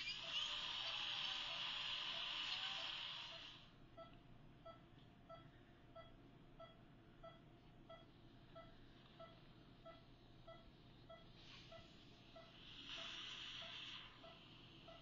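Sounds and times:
pulse oximeter beeps: 0:00.0 - 0:15.0.

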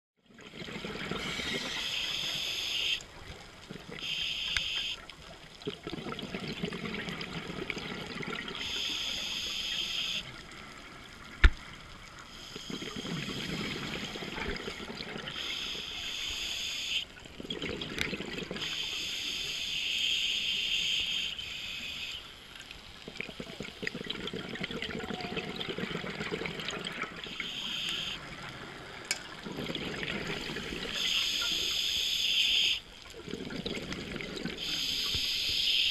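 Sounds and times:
bubbling exhale: 0:12.2 - 0:21.8, 0:23.0 - 0:28.2, 0:29.4 - 0:35.9.

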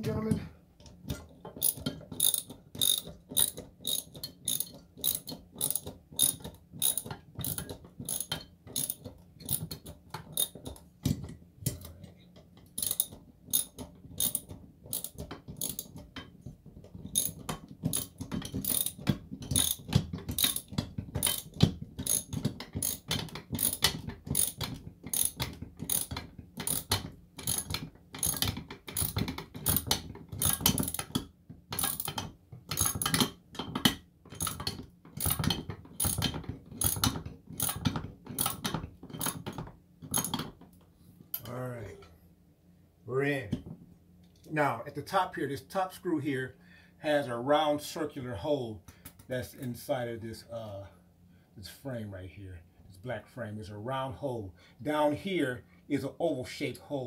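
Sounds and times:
socket ratchet clicking: 0:01.6 - 0:10.6, 0:12.7 - 0:16.0, 0:17.1 - 0:40.4.

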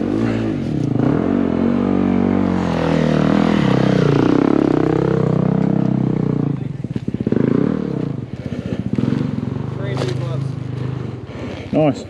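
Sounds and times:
dirt bike engine revving: 0:00.0 - 0:12.0.

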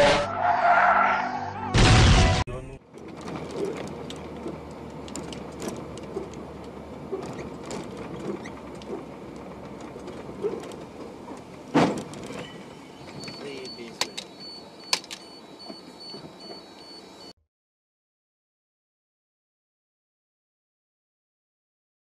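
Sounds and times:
road noise inside truck cab: 0:00.0 - 0:17.4
loud crash bang: 0:01.7 - 0:02.5
rattles and clicks: 0:02.9 - 0:16.7.

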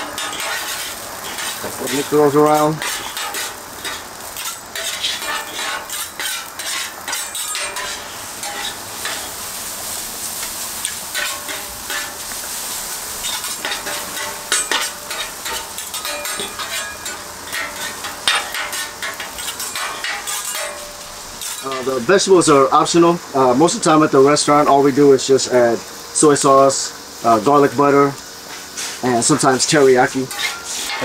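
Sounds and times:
metal spatulas scraping griddle: 0:00.0 - 0:22.0, 0:28.5 - 0:31.0
food sizzling on griddle: 0:00.0 - 0:31.0.

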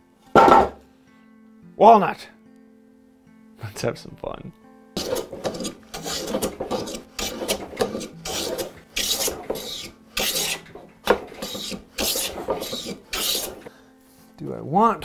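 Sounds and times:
hand plane rasping through wood: 0:05.0 - 0:13.7.

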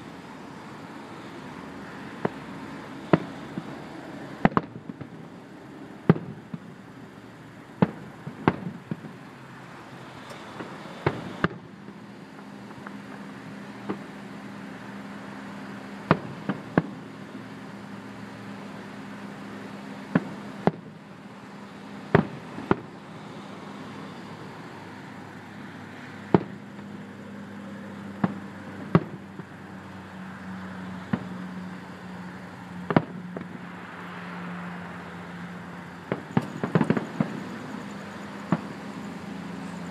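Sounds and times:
low engine hum: 0:00.0 - 0:39.9
distant firework bangs: 0:00.2 - 0:06.8, 0:07.8 - 0:09.4, 0:10.0 - 0:14.1, 0:16.0 - 0:17.6, 0:20.0 - 0:21.0, 0:22.0 - 0:24.5, 0:26.0 - 0:27.4, 0:28.0 - 0:29.6, 0:31.0 - 0:31.6, 0:32.8 - 0:33.7, 0:35.6 - 0:39.8.

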